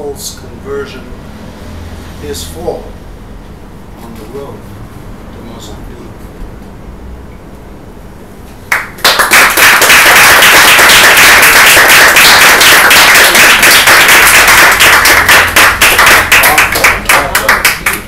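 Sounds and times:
audience applauding: 8.7 - 18.0.

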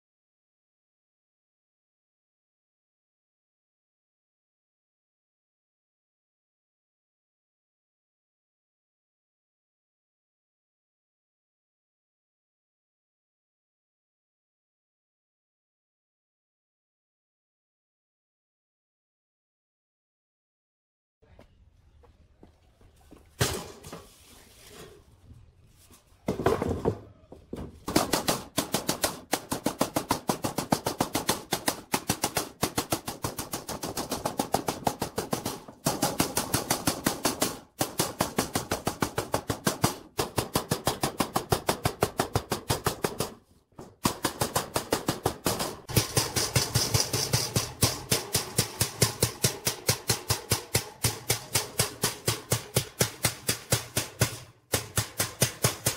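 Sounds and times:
hammer striking steel mesh: 45.6 - 55.9.

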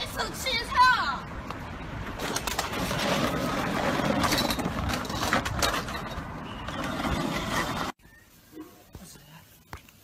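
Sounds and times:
scooter body scraping on road: 2.0 - 8.0.

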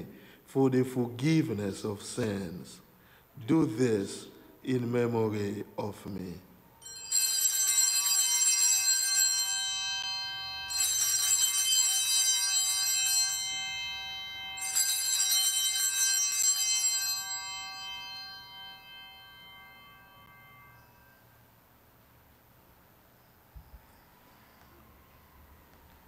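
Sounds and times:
altar bells ringing: 6.8 - 21.9.

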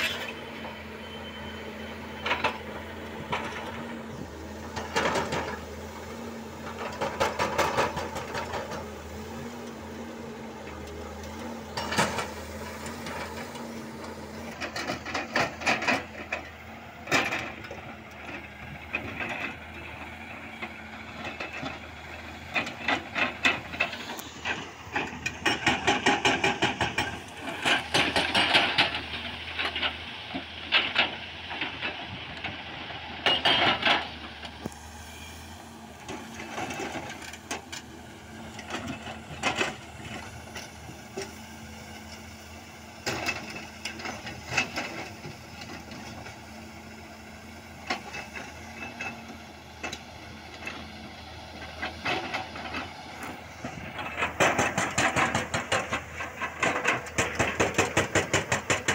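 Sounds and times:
diesel engine running: 0.0 - 58.9
hydraulic rock breaker hammering rock: 53.2 - 58.9.

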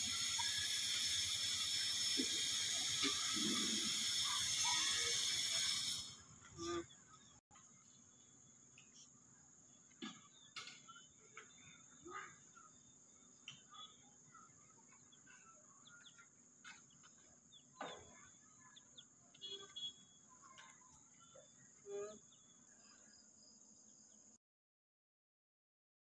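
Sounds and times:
high-pitched insect drone: 0.0 - 6.8
faint chirps: 0.0 - 24.4.

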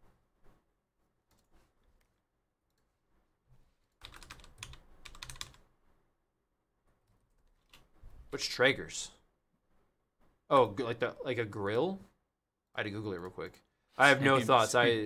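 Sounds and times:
keyboard typing clicks: 4.0 - 5.6.

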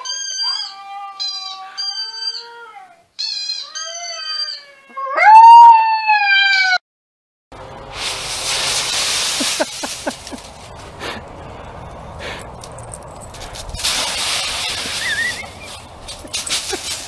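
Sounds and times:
puppy howling: 0.0 - 6.8
steady rustling with clicks: 7.7 - 17.0.

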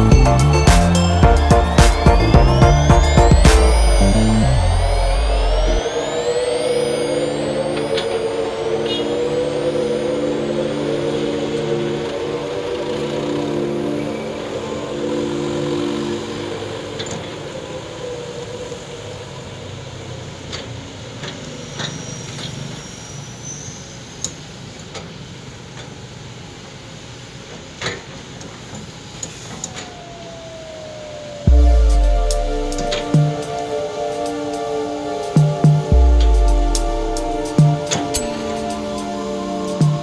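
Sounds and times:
music: 0.0 - 18.0, 31.5 - 40.0.

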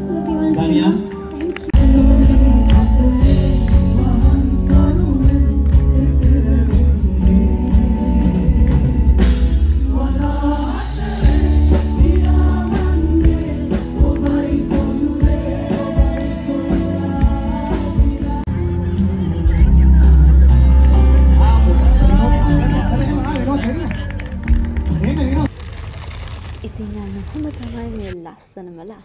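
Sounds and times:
live band with heavy bass: 1.7 - 25.4
group of vocalists singing: 1.8 - 18.5.

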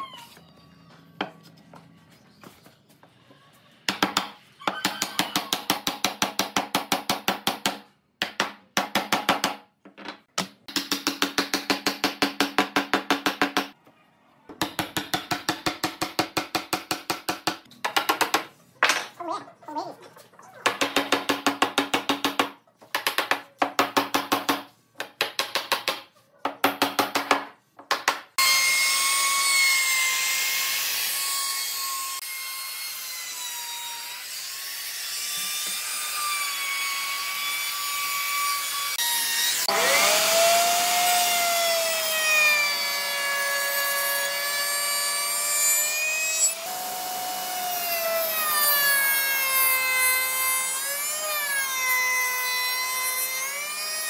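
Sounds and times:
power tool motor running: 37.0 - 41.9.

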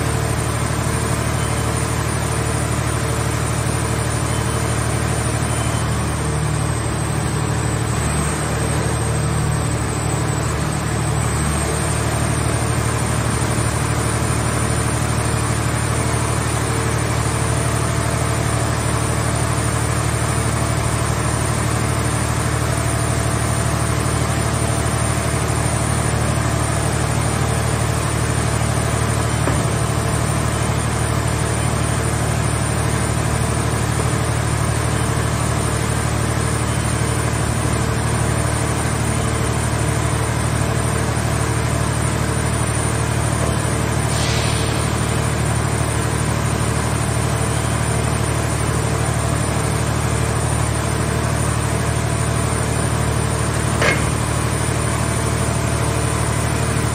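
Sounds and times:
baler power unit droning: 0.0 - 44.1, 44.8 - 56.9.

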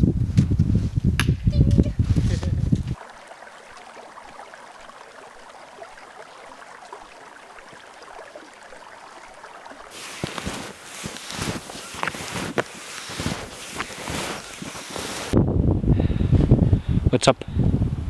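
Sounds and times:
stream trickling and gurgling: 2.9 - 15.4.

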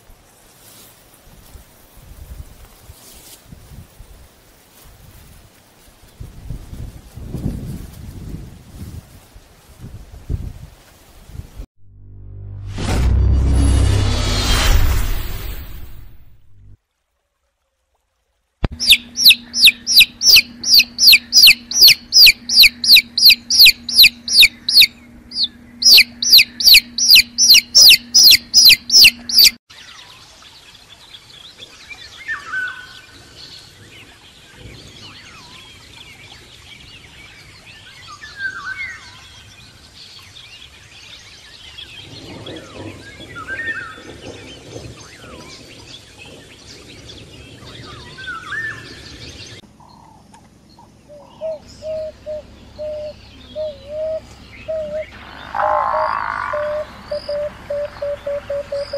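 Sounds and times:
low steady hum: 18.6 - 29.6, 49.6 - 58.9
outdoor birdsong: 18.6 - 58.9
chicks peeping: 18.7 - 29.6.

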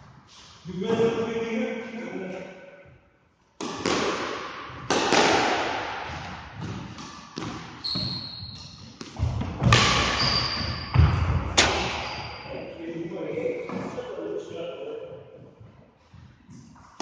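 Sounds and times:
squash ball smacks: 3.6 - 7.8, 9.0 - 10.2, 11.0 - 12.1
shoes squeaking on court floor: 6.6 - 12.8.

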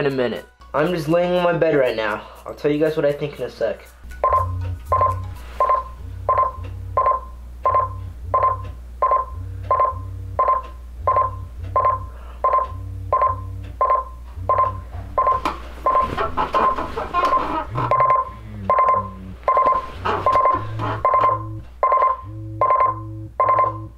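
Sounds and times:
low vibration hum: 4.0 - 23.9
alarm clock short beeps: 4.2 - 16.0, 17.9 - 23.9.

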